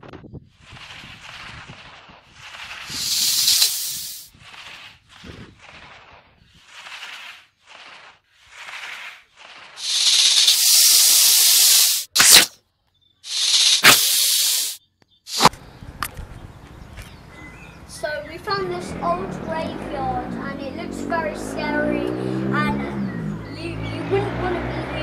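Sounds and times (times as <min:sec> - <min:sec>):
snake hissing: 0:02.4 - 0:05.9, 0:06.6 - 0:12.5, 0:13.2 - 0:15.5
sharp crack: 0:05.6 - 0:12.6, 0:13.3 - 0:16.2.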